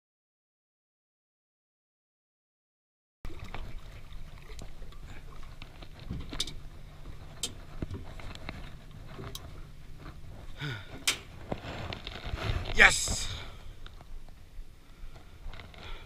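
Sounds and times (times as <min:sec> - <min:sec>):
boat engine rumble: 0:03.3 - 0:16.0.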